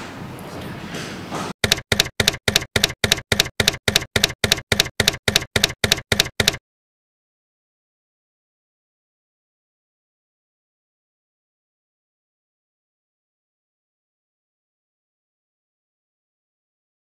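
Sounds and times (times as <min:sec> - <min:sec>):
typewriter key strikes: 0:01.6 - 0:06.6.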